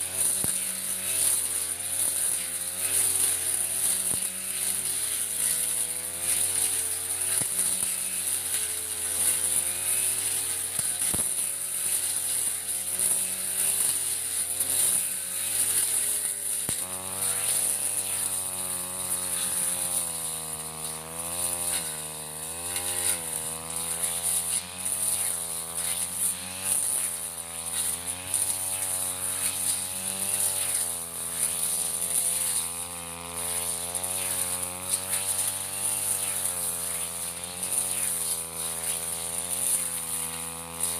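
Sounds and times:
brush cutter engine cutting grass: 0.0s - 40.9s.

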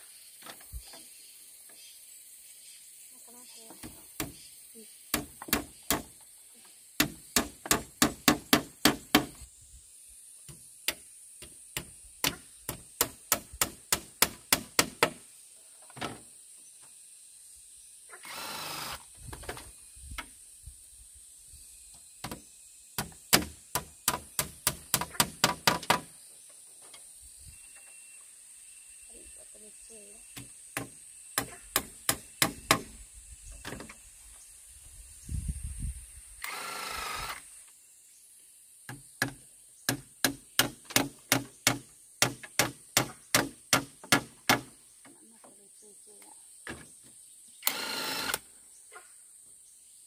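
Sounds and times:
hammer striking wood: 5.1s - 6.1s, 7.0s - 9.4s, 10.9s - 15.2s, 23.0s - 26.1s, 30.4s - 33.0s, 38.9s - 44.7s.

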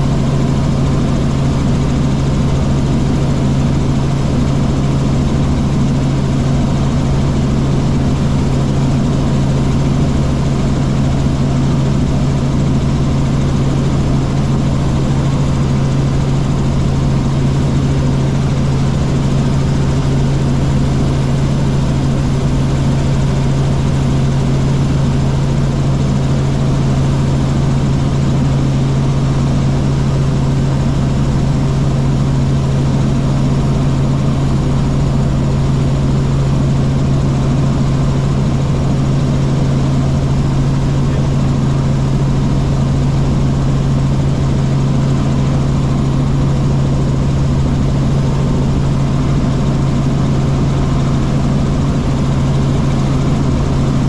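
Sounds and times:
helicopter engine and rotors: 0.0s - 54.0s.

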